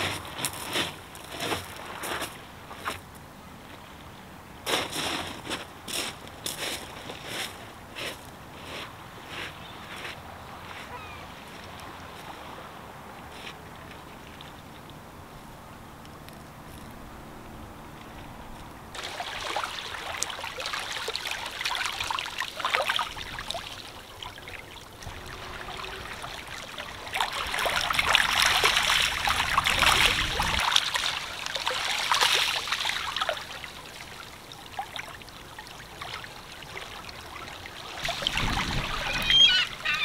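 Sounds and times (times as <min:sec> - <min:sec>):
sea water washing over pebbles: 0:19.0 - 0:39.6.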